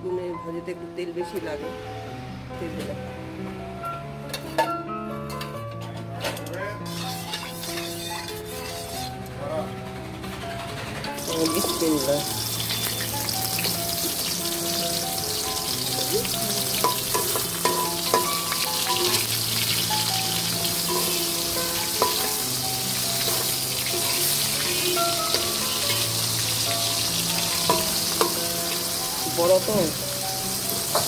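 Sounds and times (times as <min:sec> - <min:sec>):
soft background music: 0:00.0 - 0:31.0
eggplant sizzling in hot oil: 0:06.9 - 0:09.1, 0:11.2 - 0:31.0
metal spatula tapping pan: 0:16.8 - 0:19.3, 0:21.9 - 0:22.4, 0:27.5 - 0:28.5.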